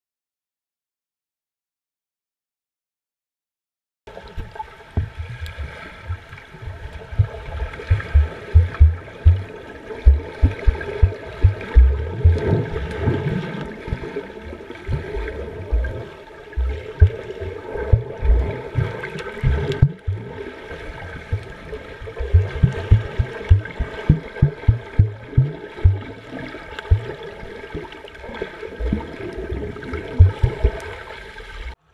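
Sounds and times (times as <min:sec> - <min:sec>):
muffled underwater sloshing: 0:04.1 - 0:31.8
low thuds of swimmers kicking: 0:07.1 - 0:14.0, 0:14.9 - 0:20.4, 0:22.2 - 0:26.2, 0:26.8 - 0:27.2, 0:30.2 - 0:30.8
steady hum: 0:07.1 - 0:20.5, 0:21.1 - 0:27.2, 0:30.2 - 0:30.7.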